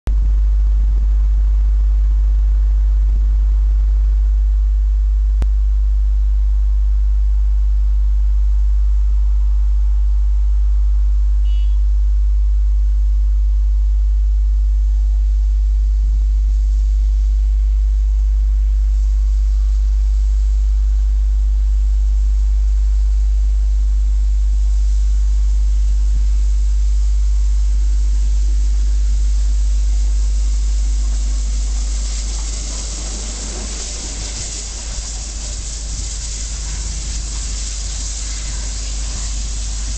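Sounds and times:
loud low hum: 0.1 - 39.9
steam locomotive hiss: 24.3 - 39.9.

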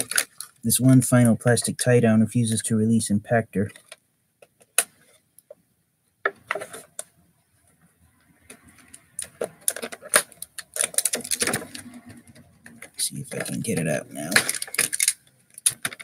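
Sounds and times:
plastic packaging crackling: 0.0 - 0.7, 8.6 - 16.0.

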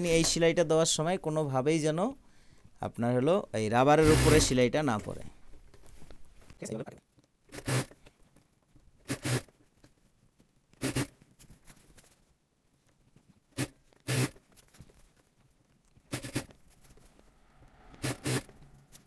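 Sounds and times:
sewing machine running in bursts: 4.0 - 4.6.

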